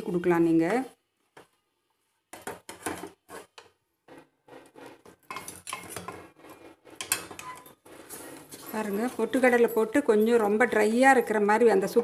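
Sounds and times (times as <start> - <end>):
wooden spatula scraping metal pan: 2.3 - 9.8.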